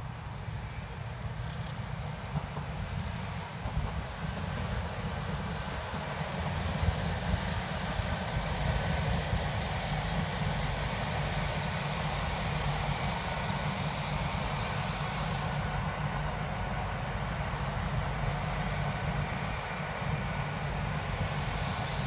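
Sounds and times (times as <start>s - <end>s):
train passing at speed: 0.0s - 22.0s
high hiss: 20.4s - 22.0s.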